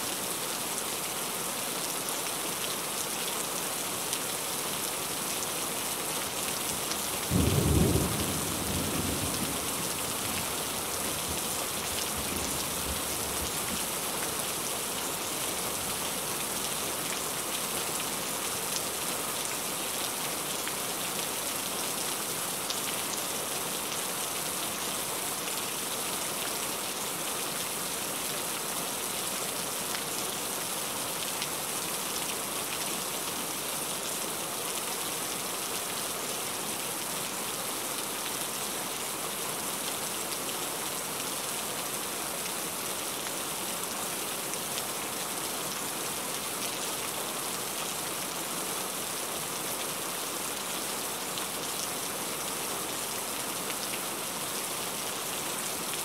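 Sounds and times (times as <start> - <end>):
heavy rain on car: 7.3 - 14.3.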